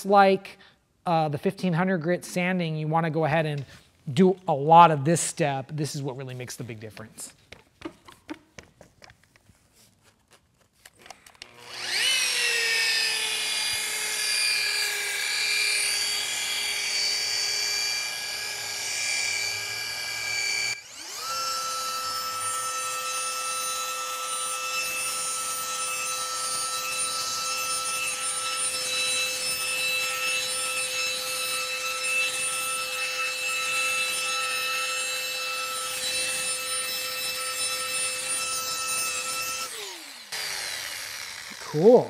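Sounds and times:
electric polisher whining: 11.0s - 42.0s.

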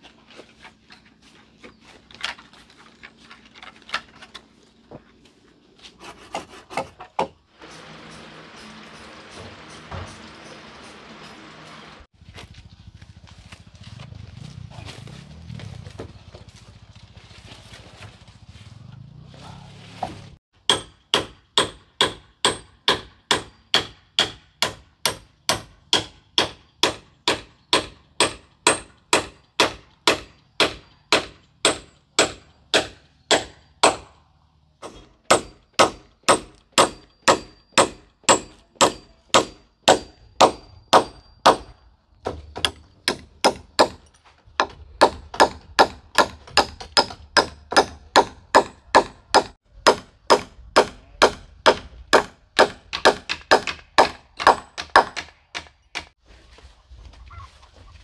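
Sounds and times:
metal tool striking with clang: 34.8s - 41.8s.

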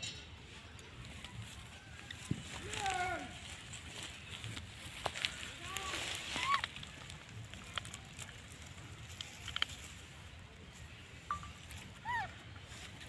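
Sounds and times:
rustles: 0.4s - 13.0s
faint clicks: 4.5s - 10.0s.

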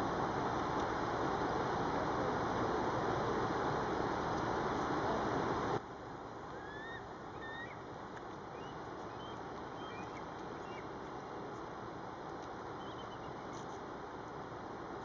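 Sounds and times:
high squeaky calls: 6.6s - 7.8s.

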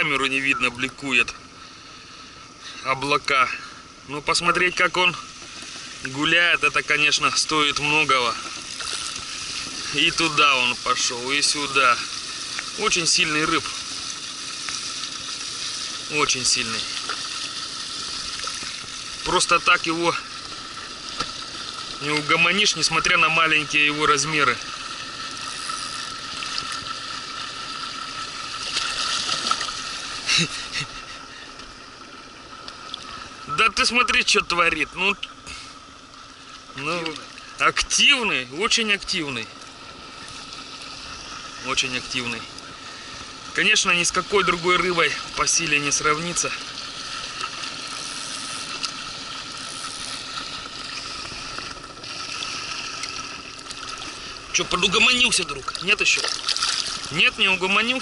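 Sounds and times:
faint steady hum: 0.0s - 58.0s
fish splashing in water: 23.6s - 31.9s, 44.3s - 58.0s.

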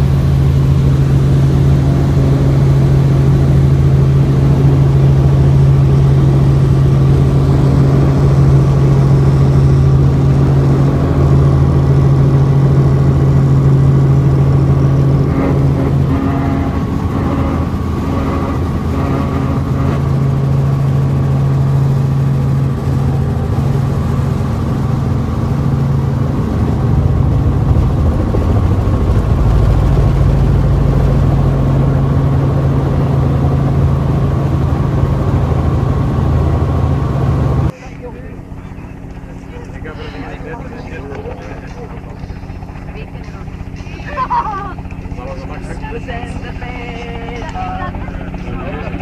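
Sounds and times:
helicopter engine and rotor: 0.0s - 49.0s.

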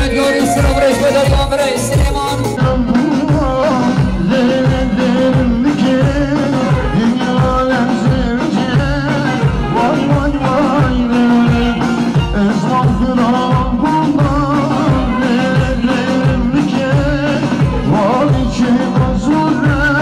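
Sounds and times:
melody line: 0.0s - 2.6s
person singing: 0.0s - 20.0s
steady drum beat: 0.0s - 20.0s.

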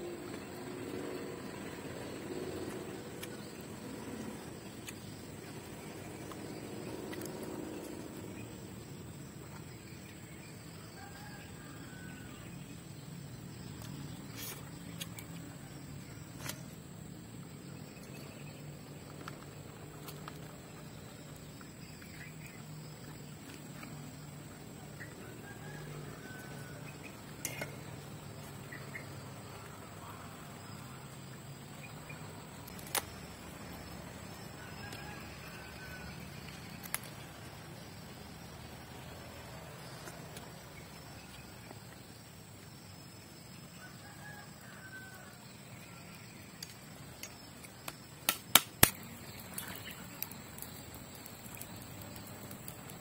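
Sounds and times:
high insect drone: 0.0s - 53.0s
sharp clicks: 48.2s - 49.0s
faint chirps: 48.9s - 53.0s.

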